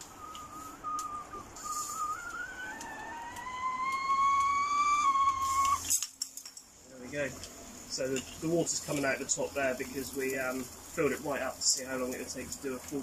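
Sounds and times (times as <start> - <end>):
steam hiss: 0.0 - 3.0
lower rising tone: 0.0 - 5.9
kettle whistle: 0.0 - 6.0.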